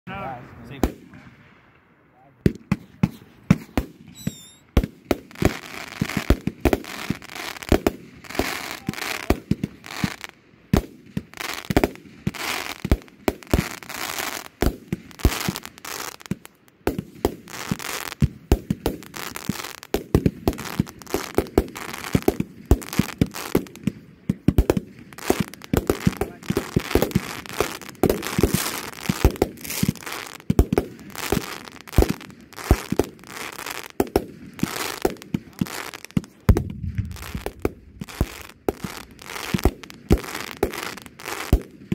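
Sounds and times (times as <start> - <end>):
firework bangs: 0.6 - 41.9
firework hiss: 2.8 - 10.4, 25.2 - 41.7.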